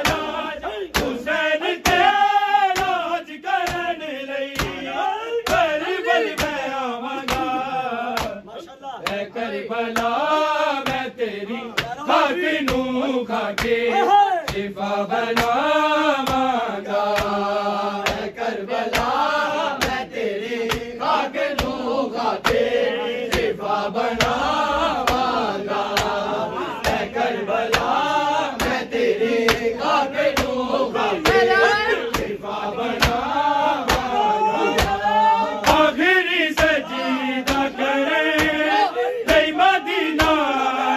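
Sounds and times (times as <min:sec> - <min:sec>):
hands beating on chests: 0:00.0 - 0:09.3, 0:10.0 - 0:17.4, 0:18.0 - 0:40.6
men chanting a lament: 0:00.0 - 0:40.9.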